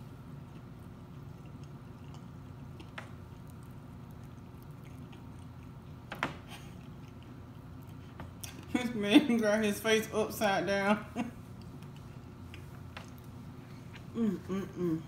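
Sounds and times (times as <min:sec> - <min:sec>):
person chewing: 0:00.0 - 0:08.7, 0:11.5 - 0:14.3
low steady hum: 0:00.0 - 0:15.0.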